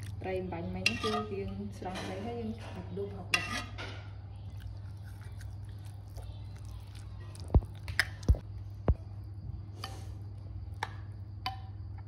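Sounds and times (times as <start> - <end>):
steady low hum: 0.0 - 12.0
metal ladle stirring in bowl: 0.8 - 2.1, 2.7 - 3.9.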